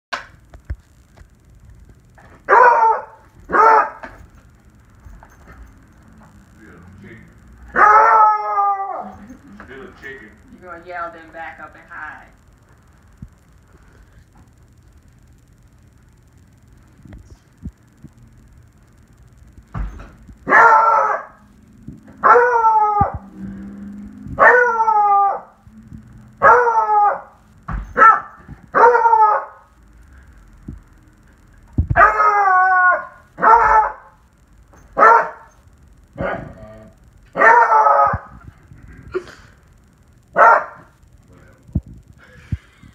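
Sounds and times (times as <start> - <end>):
dog howling: 7.7 - 9.2, 22.2 - 23.4, 24.4 - 25.6, 26.4 - 27.4, 28.0 - 29.7, 32.0 - 34.1, 37.4 - 38.3.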